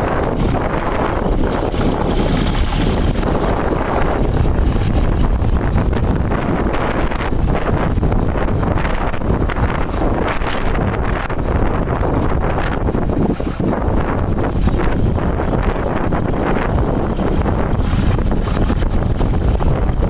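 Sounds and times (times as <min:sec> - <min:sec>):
tractor engine running: 0:00.0 - 0:20.0
wind buffeting microphone: 0:00.0 - 0:20.0.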